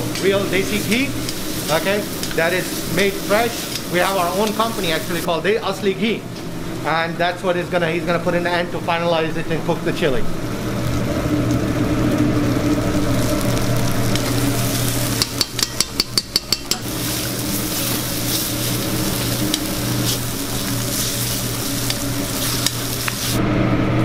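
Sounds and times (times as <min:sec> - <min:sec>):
spatula scraping pan: 0:00.0 - 0:04.9, 0:14.2 - 0:23.4
meat sizzling in oil: 0:00.0 - 0:05.3, 0:09.5 - 0:23.4
metal spatula knocking on pan: 0:15.2 - 0:16.9.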